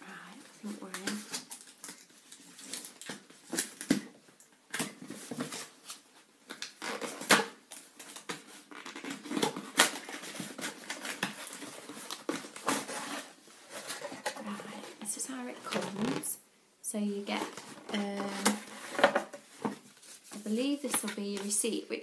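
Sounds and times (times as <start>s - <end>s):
cardboard and paper rustling: 4.8s - 16.3s, 17.2s - 21.6s.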